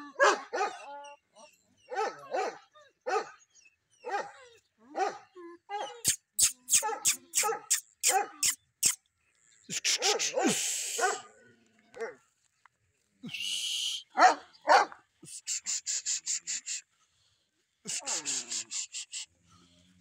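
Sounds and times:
dogs barking and yelping: 0:00.0 - 0:09.0, 0:09.7 - 0:12.2, 0:14.2 - 0:16.8, 0:17.9 - 0:19.2
short hissing rushes: 0:15.2 - 0:16.8.

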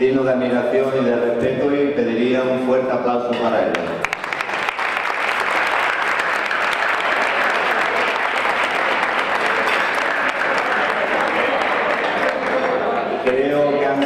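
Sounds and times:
audience clapping: 0:03.8 - 0:13.4.

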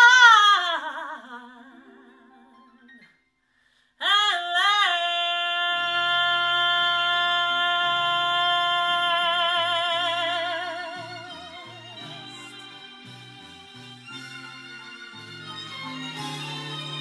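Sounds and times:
low sustained accompaniment notes: 0:11.2 - 0:17.0.

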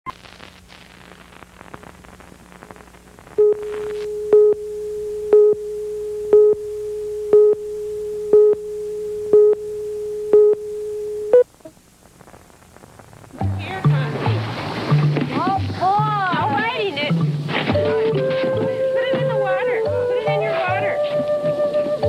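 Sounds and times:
tape hiss and crackle: 0:00.0 - 0:22.0
short beeps: 0:03.4 - 0:11.5
steady test tone: 0:03.4 - 0:11.6.

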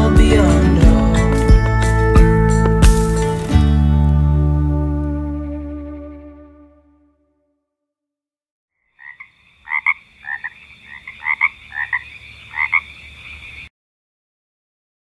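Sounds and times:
frogs croaking: 0:08.8 - 0:13.7.

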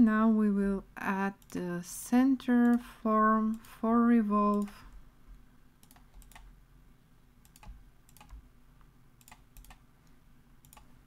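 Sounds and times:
computer mouse and keyboard clicks: 0:05.8 - 0:06.5, 0:07.4 - 0:08.4, 0:09.2 - 0:09.8, 0:10.6 - 0:11.0.

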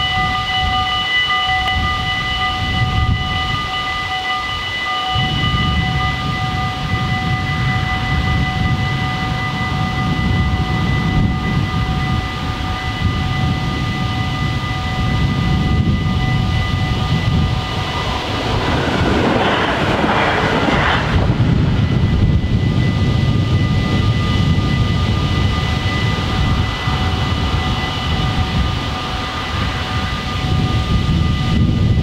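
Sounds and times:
loud low rumble: 0:15.2 - 0:32.0.

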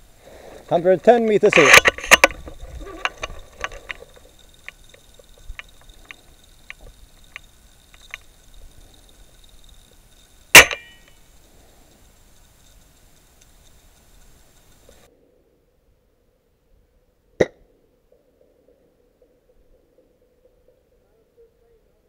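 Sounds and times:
faint clicks: 0:01.5 - 0:15.1
airsoft rifle shot: 0:10.5 - 0:11.0.

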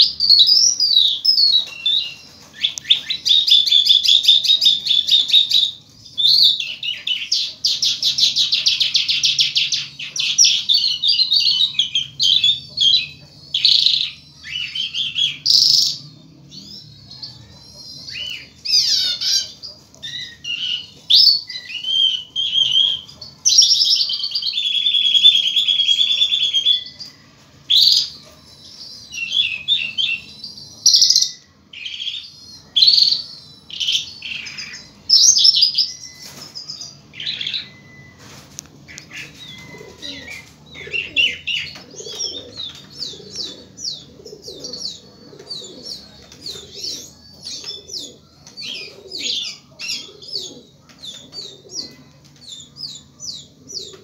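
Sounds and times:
lark singing: 0:00.0 - 0:27.1, 0:38.9 - 0:54.0.

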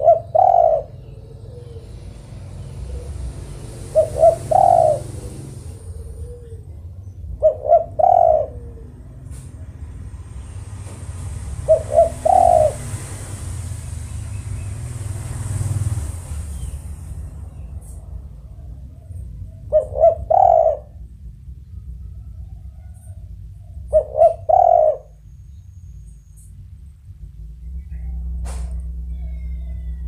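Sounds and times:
dove cooing: 0:00.0 - 0:09.8, 0:11.3 - 0:13.6, 0:17.8 - 0:25.3, 0:27.8 - 0:30.0
low background hum: 0:00.0 - 0:30.0.

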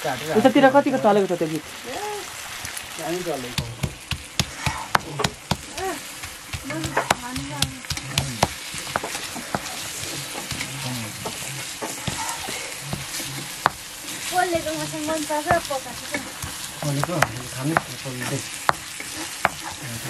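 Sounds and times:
pork sizzling in a pot: 0:00.0 - 0:20.0.

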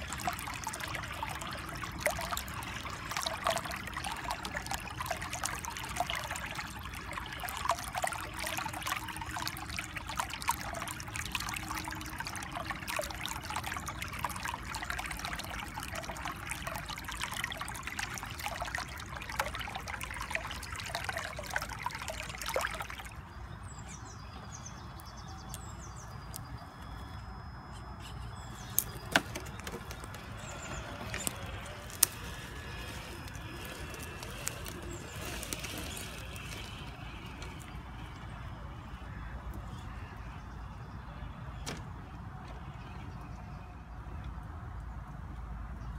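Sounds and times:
stream babbling over rocks: 0:00.0 - 0:23.4, 0:28.6 - 0:39.3.

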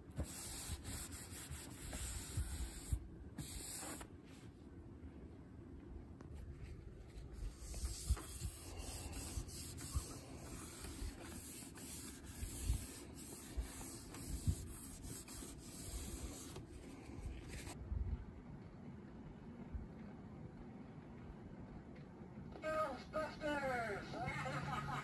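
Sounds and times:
cloth wiping glass screen: 0:07.4 - 0:16.9, 0:17.5 - 0:25.0.

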